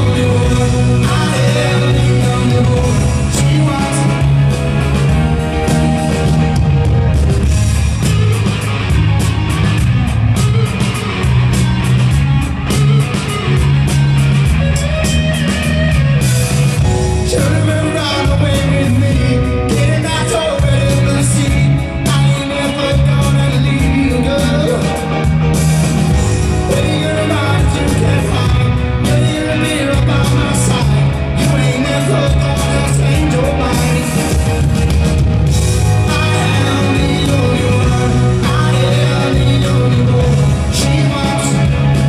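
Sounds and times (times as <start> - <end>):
person singing: 0.0 - 4.7, 17.1 - 25.2, 26.6 - 34.5, 35.9 - 42.0
bass guitar: 0.0 - 42.0
drums keeping a steady beat: 0.0 - 42.0
electric guitars: 0.0 - 42.0.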